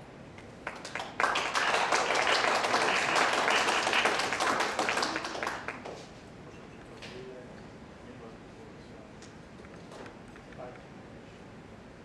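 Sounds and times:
audience applause: 0:00.6 - 0:06.0.

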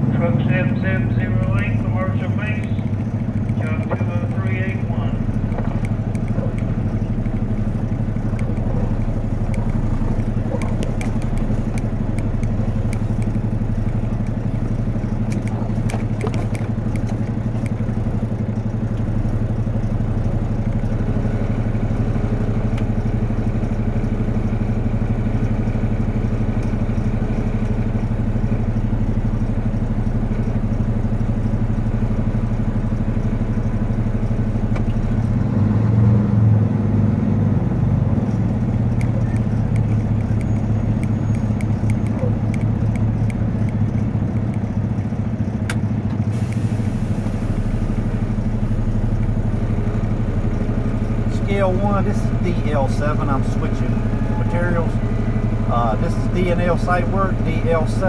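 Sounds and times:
diesel engine idling: 0:00.0 - 0:58.0
light clicks and rattles: 0:02.5 - 0:21.0, 0:38.2 - 0:46.2.

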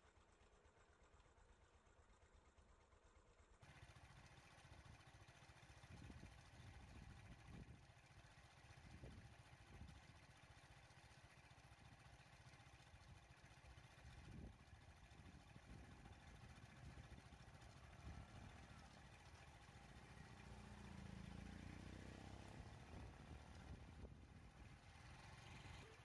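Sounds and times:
vehicle engine idling: 0:03.6 - 0:26.0.

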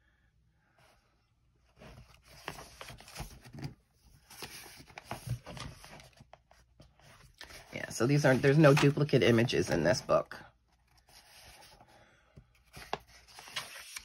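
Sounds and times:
paper page rustling: 0:01.8 - 0:10.0, 0:12.6 - 0:14.0.

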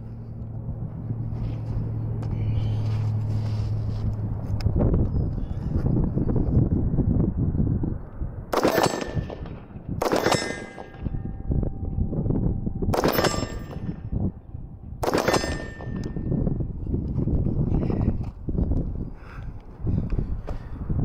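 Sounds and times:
bullets clanging on steel plate: 0:10.2 - 0:11.0, 0:13.0 - 0:13.9, 0:15.1 - 0:16.0.

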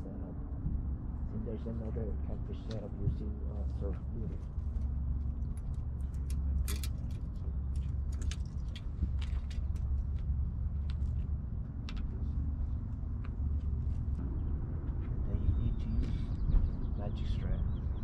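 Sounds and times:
low rumble: 0:00.0 - 0:18.0
fishing tackle clicks and rattles: 0:05.7 - 0:09.9.

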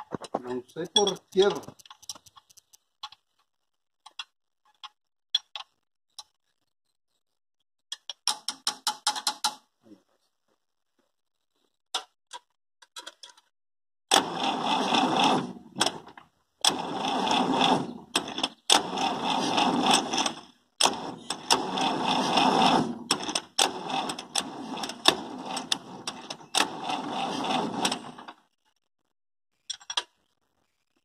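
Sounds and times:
tractor engine cranking: 0:00.0 - 0:02.8, 0:14.1 - 0:28.4.

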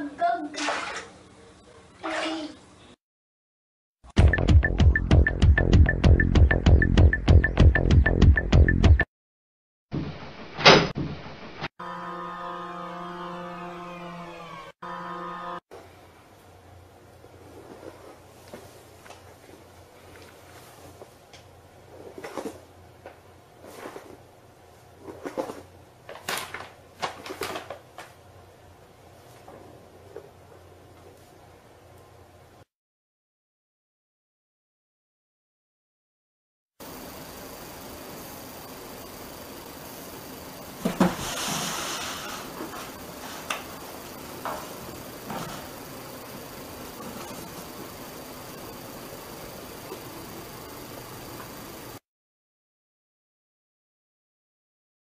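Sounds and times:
paper bag rustling and crinkling: 0:25.1 - 0:28.1.

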